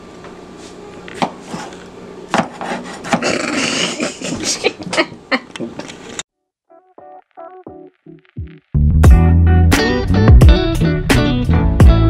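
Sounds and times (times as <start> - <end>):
knife scraping: 1.4 - 4.4.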